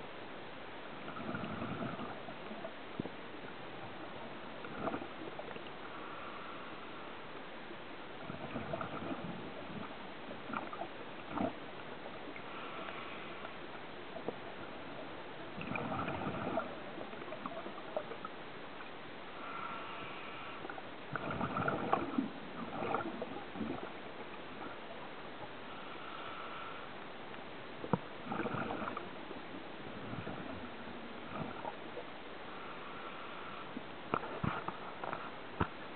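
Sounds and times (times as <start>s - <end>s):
bubbling exhaled air: 1.0s - 2.6s, 4.6s - 5.4s, 8.2s - 11.6s, 15.5s - 18.1s, 19.5s - 23.9s, 28.2s - 29.1s, 30.0s - 31.8s
regulator hissing inhale: 5.9s - 7.0s, 12.5s - 13.5s, 19.4s - 20.8s, 25.7s - 27.0s, 32.5s - 33.8s.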